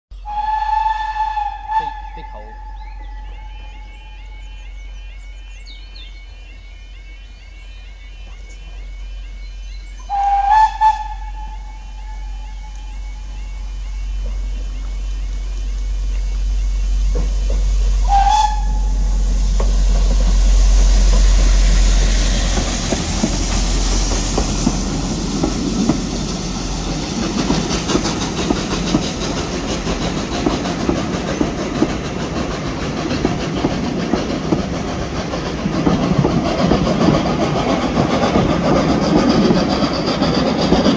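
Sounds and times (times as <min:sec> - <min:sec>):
steam hissing: 0:00.2 - 0:40.9
wheels clacking over rail joints: 0:21.0 - 0:40.9.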